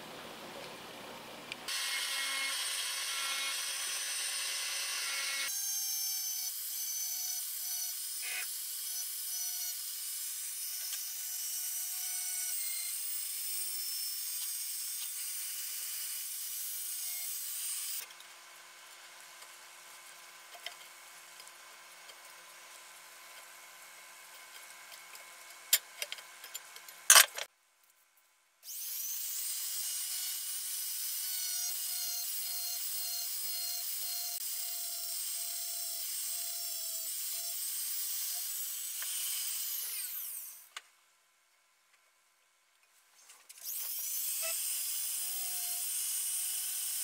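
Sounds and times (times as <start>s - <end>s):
rotary grinder whining on metal: 28.7s - 40.7s.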